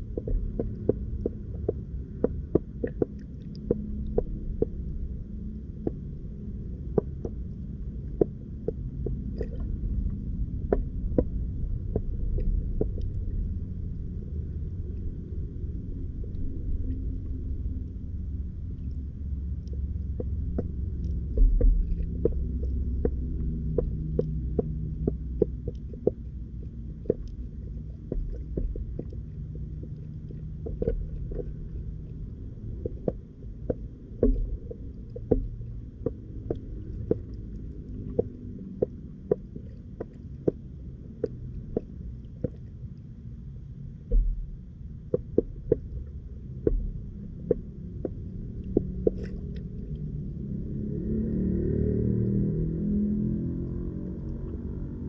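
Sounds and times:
underwater clicks and taps: 0:00.0 - 0:05.0, 0:06.8 - 0:13.6, 0:18.8 - 0:43.0, 0:44.0 - 0:51.5
underwater rumble: 0:00.0 - 0:55.0.

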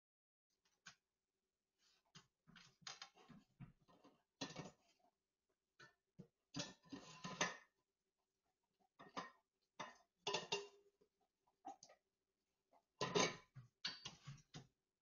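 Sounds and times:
dishes clinking in metal sink: 0:09.1 - 0:10.8, 0:13.0 - 0:14.3.

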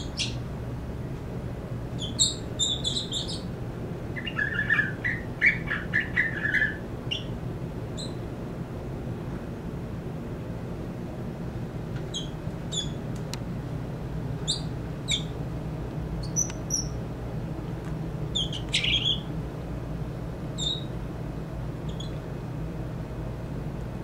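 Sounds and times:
bird chirps and squeaky notes: 0:00.0 - 0:00.4, 0:02.0 - 0:03.5, 0:04.2 - 0:07.4, 0:08.0 - 0:08.2, 0:12.1 - 0:13.0, 0:14.4 - 0:15.4, 0:16.2 - 0:17.0, 0:18.3 - 0:19.3, 0:20.6 - 0:20.9, 0:21.9 - 0:22.2.

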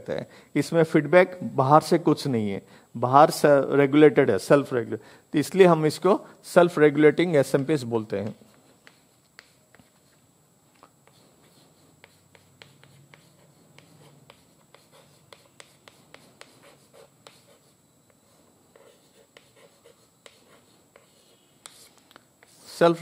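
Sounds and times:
chalk writing on blackboard: 0:08.3 - 0:10.2, 0:11.0 - 0:22.8.

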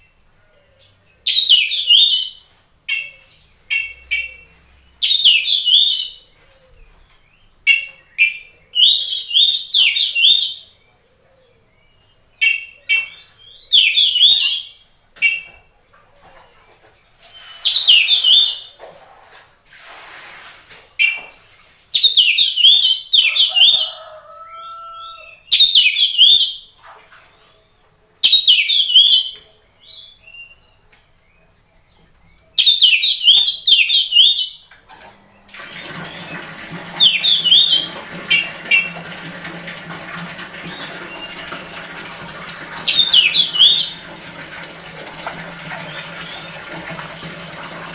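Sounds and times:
songbird whistling and chattering: 0:17.4 - 0:18.7, 0:32.6 - 0:34.6.

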